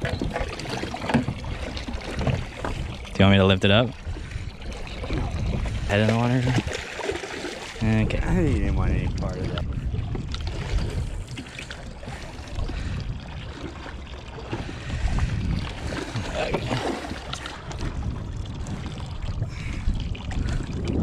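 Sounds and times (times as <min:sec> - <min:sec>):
water moving against hull: 0:00.0 - 0:21.0
wind rumbling on microphone: 0:00.0 - 0:21.0.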